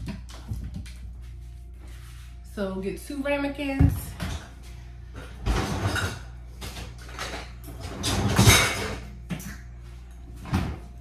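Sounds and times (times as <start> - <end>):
glass ramekins clattering: 5.5 - 9.1.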